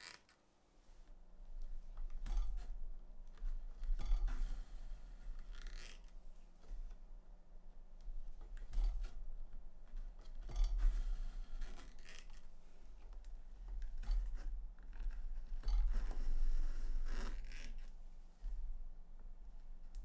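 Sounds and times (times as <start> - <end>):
tools scraping and cutting leather: 0.0 - 0.4, 3.5 - 6.2, 10.2 - 12.5, 13.8 - 17.9.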